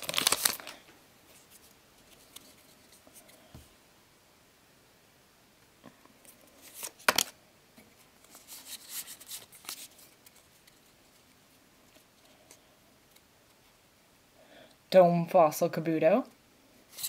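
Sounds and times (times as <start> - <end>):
trading cards rustling and crackling: 0.0 - 3.4, 6.3 - 7.4, 8.0 - 13.6.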